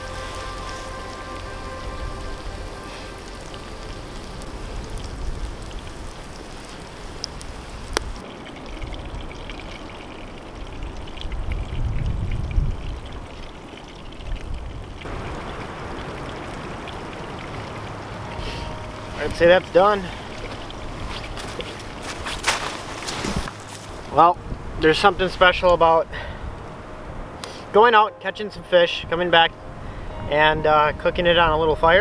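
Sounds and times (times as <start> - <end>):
fish sizzling in hot oil: 0.0 - 10.8
dull outdoor rumble: 0.0 - 32.0.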